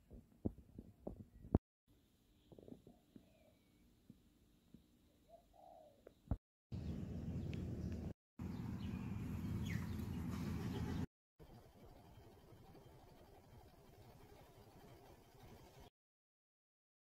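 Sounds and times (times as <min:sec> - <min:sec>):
faint bird chirps: 0:02.3 - 0:03.9, 0:04.7 - 0:06.2.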